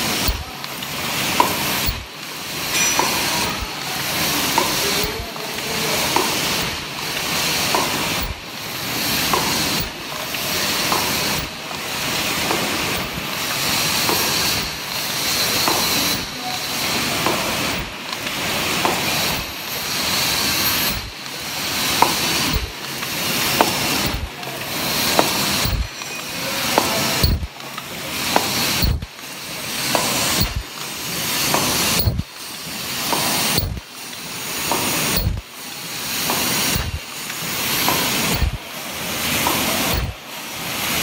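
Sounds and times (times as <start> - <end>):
mechanical clicks and knocks: 0.0 - 3.7, 4.5 - 8.4, 9.3 - 13.4, 20.7 - 21.3, 21.9 - 24.3, 25.0 - 35.5, 36.2 - 38.6, 39.4 - 40.2
machine air hiss: 0.0 - 41.0.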